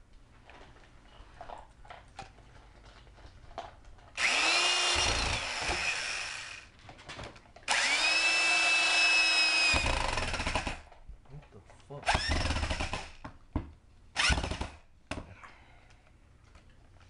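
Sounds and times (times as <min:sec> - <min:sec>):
electric drill into wood: 0:04.2 - 0:06.7, 0:07.7 - 0:10.9, 0:12.1 - 0:13.2, 0:14.2 - 0:14.8.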